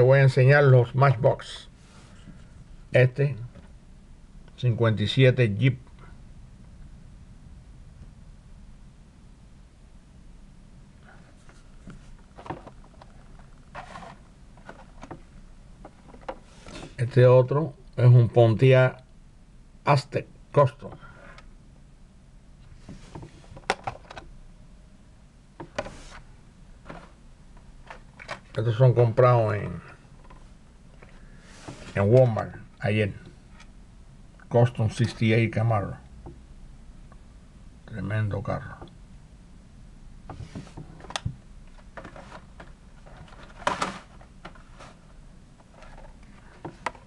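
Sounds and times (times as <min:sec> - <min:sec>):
cardboard rustles: 0:11.3 - 0:15.3, 0:25.8 - 0:27.2, 0:41.9 - 0:45.1.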